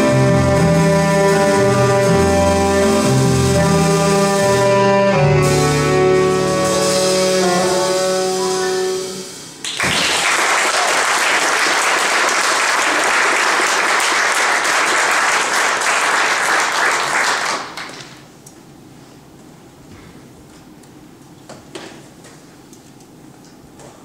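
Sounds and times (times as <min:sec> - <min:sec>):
saxophones and piano chord: 0:00.0 - 0:09.6
audience applauding: 0:09.6 - 0:18.2.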